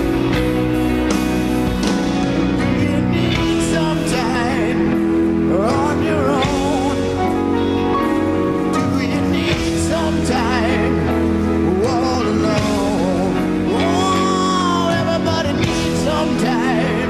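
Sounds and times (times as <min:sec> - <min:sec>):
sustained instrumental accompaniment: 0:00.0 - 0:17.0
person singing: 0:02.1 - 0:17.0.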